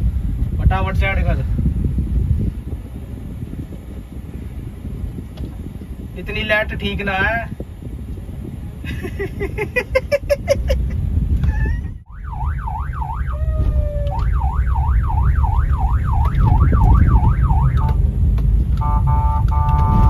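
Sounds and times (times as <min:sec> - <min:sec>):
car engine and road noise: 0:00.0 - 0:20.0
electronic siren chirps and yelp: 0:12.0 - 0:18.0.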